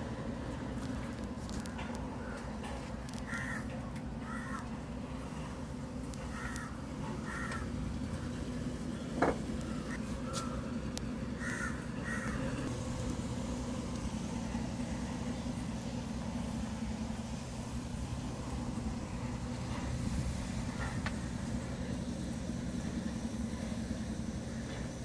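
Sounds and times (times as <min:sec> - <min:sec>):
low engine hum: 0:00.0 - 0:25.0
crows cawing: 0:03.1 - 0:04.7, 0:06.2 - 0:07.9, 0:11.3 - 0:12.7.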